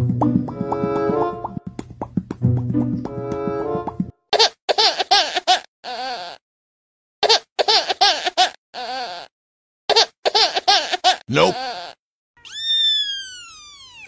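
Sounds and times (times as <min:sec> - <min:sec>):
high-pitched voice hiccuping: 0:11.3 - 0:11.8.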